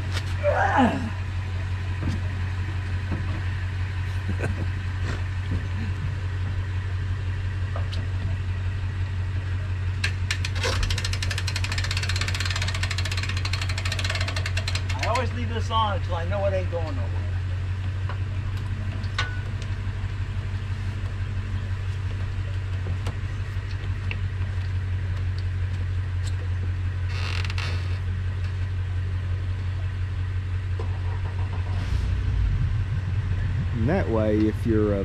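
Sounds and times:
engine idling hum: 0:00.0 - 0:35.0
small creaks and clicks: 0:27.1 - 0:28.7
short rushing noise: 0:31.1 - 0:35.0.

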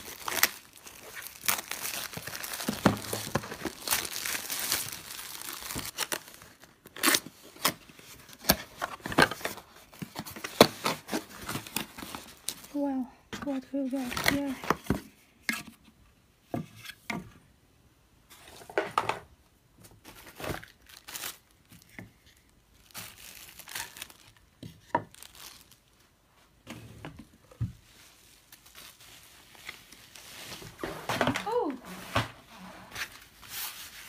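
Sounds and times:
plastic wrapping crinkling: 0:00.0 - 0:12.9, 0:20.0 - 0:26.1, 0:27.8 - 0:34.0.

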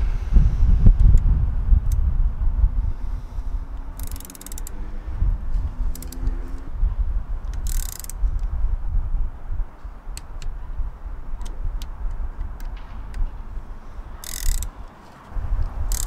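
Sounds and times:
low rumble: 0:00.0 - 0:04.0
torque wrench clicking: 0:03.8 - 0:04.8, 0:05.9 - 0:06.7, 0:07.4 - 0:08.5, 0:14.2 - 0:15.0, 0:15.6 - 0:16.0.

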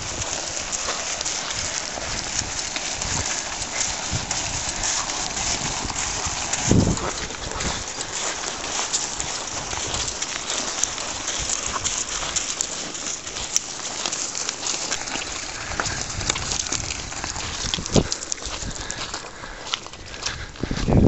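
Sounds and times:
footsteps crunching on pebbles: 0:00.0 - 0:21.0
hooves crunching on pebbles: 0:00.0 - 0:21.0.

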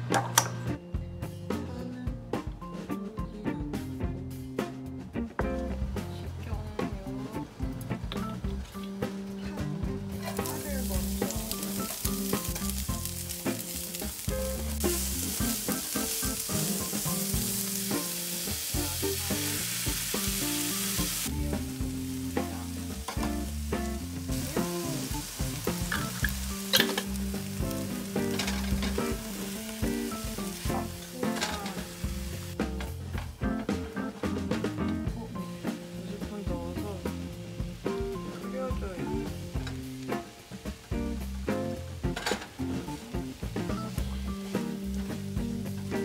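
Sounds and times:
vegetables sizzling in hot oil: 0:10.0 - 0:33.0, 0:35.4 - 0:46.0.

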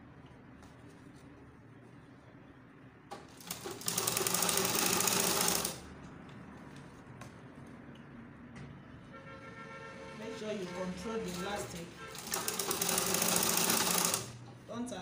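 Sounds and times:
sewing machine stitching: 0:03.3 - 0:05.8, 0:11.3 - 0:14.4.

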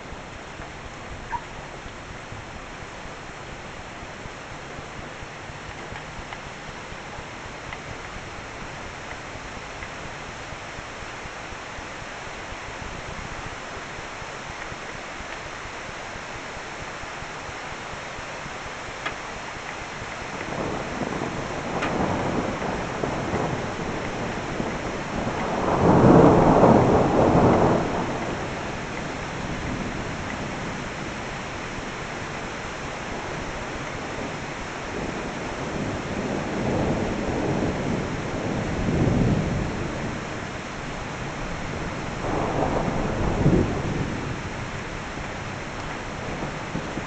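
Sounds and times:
rain hissing: 0:00.0 - 0:47.0
thunder rumbling: 0:20.0 - 0:47.0.

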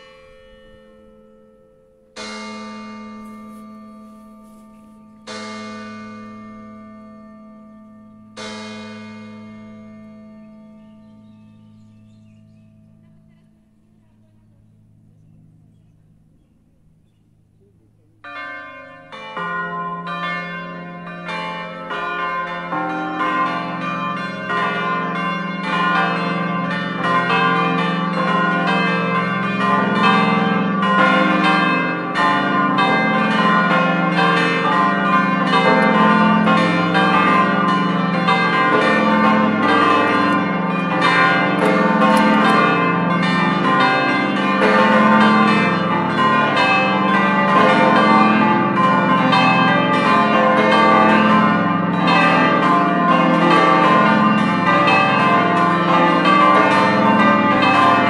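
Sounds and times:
church bells pealing: 0:00.0 - 0:58.0.

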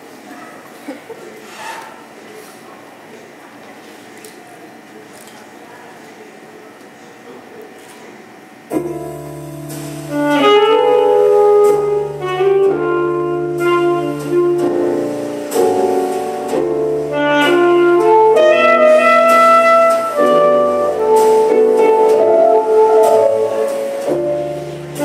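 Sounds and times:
backing track chords and bass: 0:08.7 - 0:25.0
saxophone jazz melody: 0:08.7 - 0:25.0.

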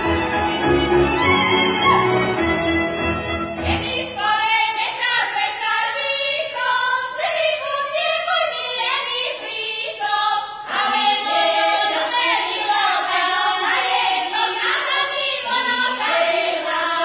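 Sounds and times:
orchestra accompaniment: 0:00.0 - 0:03.9
women singing folk song: 0:03.6 - 0:17.0.

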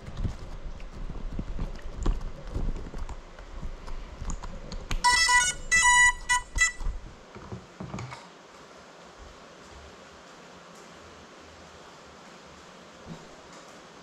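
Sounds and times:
drone electronic beeps: 0:05.0 - 0:06.8.

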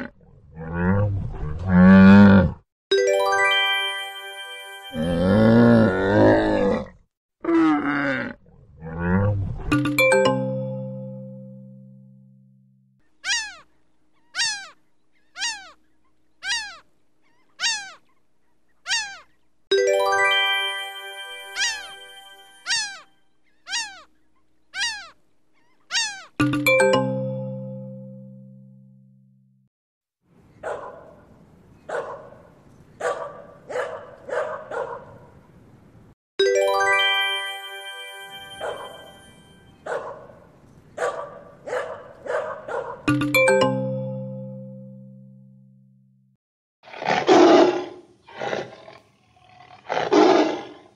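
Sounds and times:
bright ringing chime: 0:02.9 - 0:05.7, 0:09.7 - 0:12.6, 0:19.7 - 0:23.0, 0:26.4 - 0:29.2, 0:36.4 - 0:39.8, 0:43.1 - 0:45.9
seagull crying: 0:13.2 - 0:13.7, 0:14.3 - 0:15.8, 0:16.4 - 0:18.0, 0:18.9 - 0:19.3, 0:21.5 - 0:22.0, 0:22.6 - 0:24.1, 0:24.8 - 0:25.2, 0:25.8 - 0:26.4
dog barking: 0:30.6 - 0:31.2, 0:31.9 - 0:35.3, 0:39.8 - 0:40.4, 0:41.0 - 0:43.1.

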